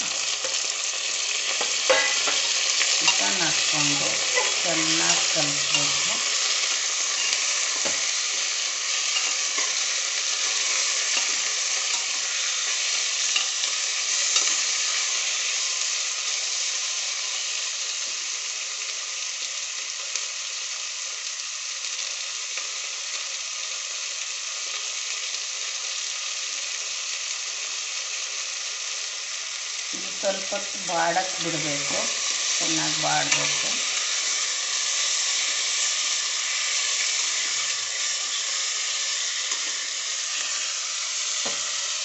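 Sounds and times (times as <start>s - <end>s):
chicken sizzling in oil: 0.0s - 42.0s
spatula scraping pot: 4.0s - 6.0s.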